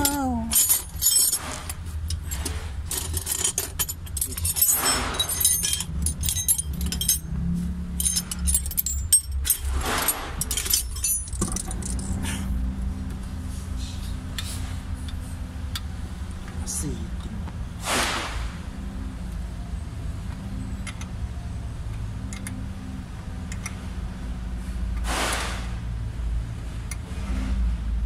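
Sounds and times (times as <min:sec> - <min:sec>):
wrench and metal parts clinking: 0:00.0 - 0:12.5.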